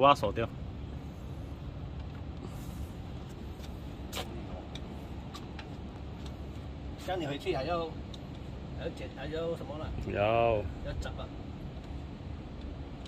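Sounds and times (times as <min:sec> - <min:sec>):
low background rumble: 0:00.0 - 0:13.0
brief faint hiss: 0:03.6 - 0:04.4
light clicks and taps on fittings: 0:08.0 - 0:08.5.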